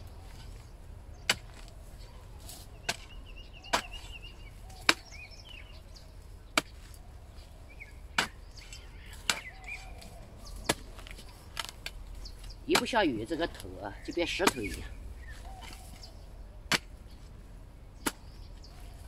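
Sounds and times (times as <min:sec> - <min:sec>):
hoe blade chopping dry soil: 0:00.2 - 0:05.6, 0:06.5 - 0:17.2, 0:17.9 - 0:19.0.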